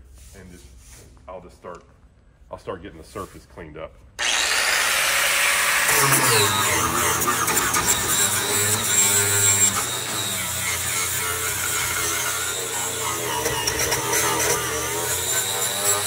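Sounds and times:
angle grinder sanding metal: 0:04.2 - 0:16.0.

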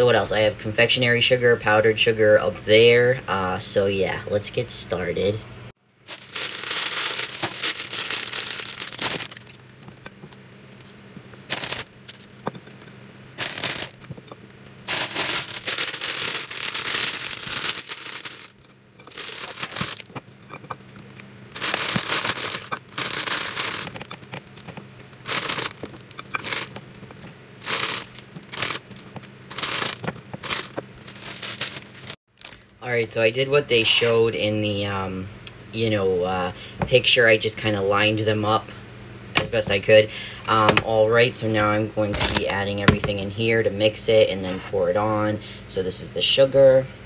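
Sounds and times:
plastic bag crinkling: 0:06.0 - 0:09.8, 0:11.5 - 0:12.4, 0:13.4 - 0:20.3, 0:21.5 - 0:32.8.

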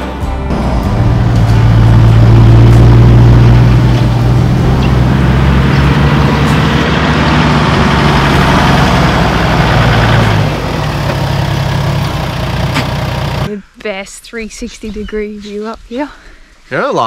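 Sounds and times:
car engine droning: 0:00.0 - 0:13.5.

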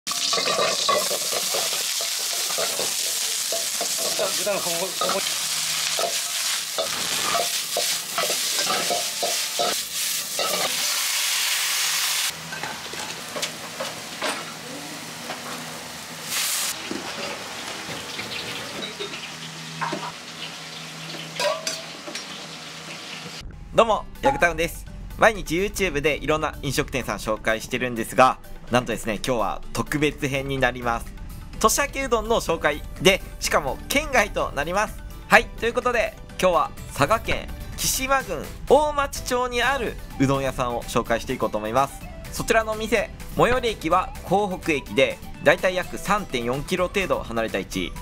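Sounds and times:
dishes clinking: 0:00.1 - 0:04.3, 0:06.8 - 0:09.8, 0:12.5 - 0:14.5, 0:18.0 - 0:20.2, 0:21.1 - 0:22.4
vegetables sizzling in a wok: 0:00.1 - 0:23.4
metal ladle scraping a wok: 0:00.2 - 0:04.2, 0:05.0 - 0:11.0.

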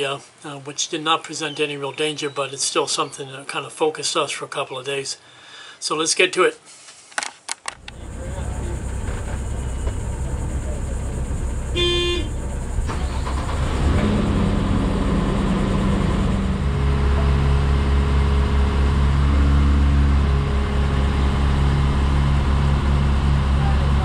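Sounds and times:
engine running: 0:07.8 - 0:24.0.

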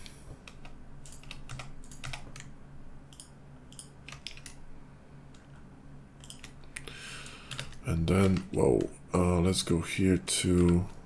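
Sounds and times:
faint low hum: 0:00.0 - 0:11.0
keyboard keys clicking: 0:00.4 - 0:02.5, 0:03.1 - 0:04.6, 0:06.2 - 0:06.6.

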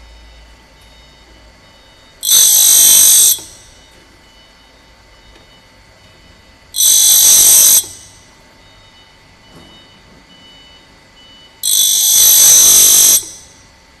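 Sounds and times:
faint machine background: 0:00.0 - 0:14.0
high-pitched grinding wheel: 0:02.2 - 0:03.8, 0:06.8 - 0:08.2, 0:11.6 - 0:13.6.

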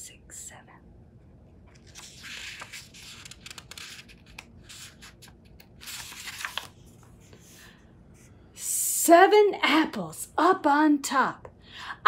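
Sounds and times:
book pages turning: 0:01.6 - 0:07.6.

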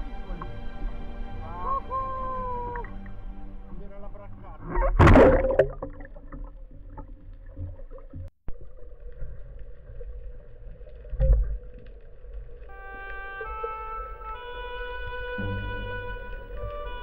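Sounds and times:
underwater rumble: 0:00.0 - 0:17.0
water splash and bubbles: 0:02.6 - 0:14.4.

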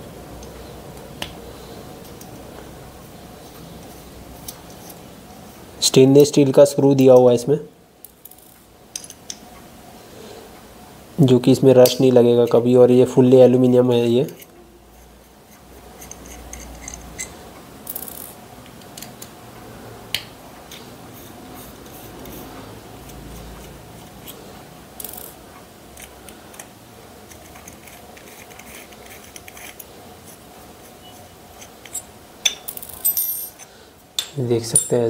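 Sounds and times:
allen key clicking and scraping: 0:15.9 - 0:18.3, 0:25.0 - 0:29.9.

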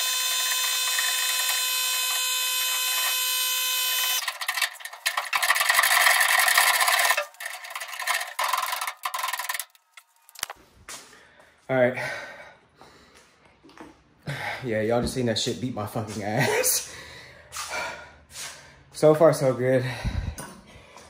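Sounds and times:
power tool motor whining: 0:00.0 - 0:09.8.

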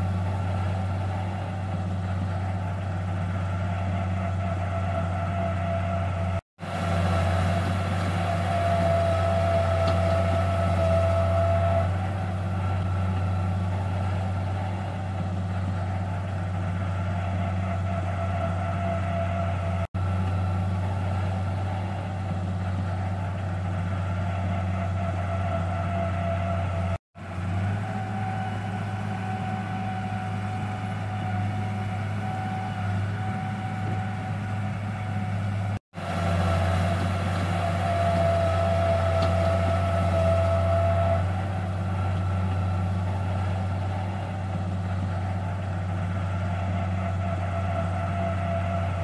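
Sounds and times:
bulldozer diesel engine drone: 0:00.0 - 0:49.0.

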